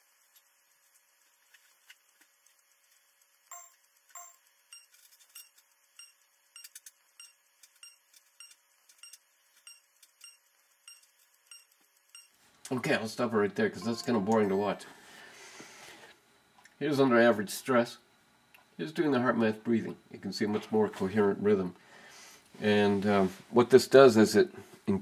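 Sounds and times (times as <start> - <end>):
faint steady hum: 0.0 - 25.0
high electronic beeps: 3.5 - 4.9, 6.0 - 12.4, 13.8 - 14.8.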